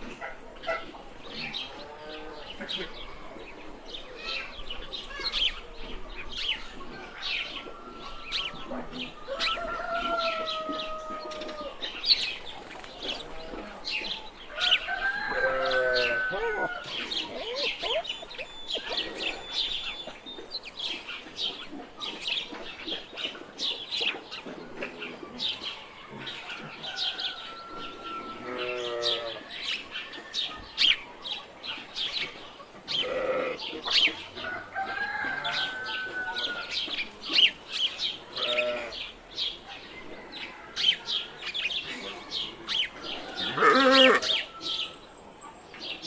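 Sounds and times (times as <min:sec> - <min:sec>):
small birds chirping: 0:00.0 - 0:46.0
farm animal calls: 0:13.0 - 0:20.2, 0:26.2 - 0:29.8, 0:32.9 - 0:37.6, 0:38.3 - 0:39.2, 0:40.0 - 0:45.6.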